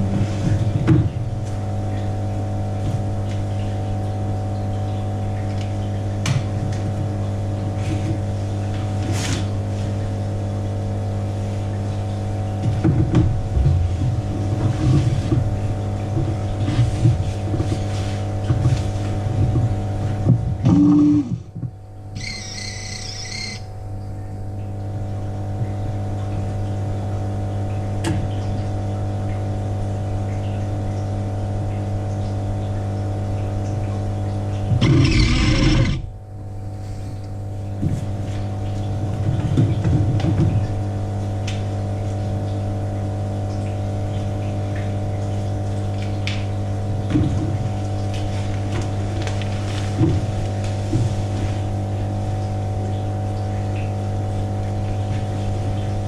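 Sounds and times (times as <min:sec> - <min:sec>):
fish tank pump humming: 0:13.4 - 0:39.1
uneven rumbling: 0:34.7 - 0:36.2
loud noisy burst: 0:34.8 - 0:36.1.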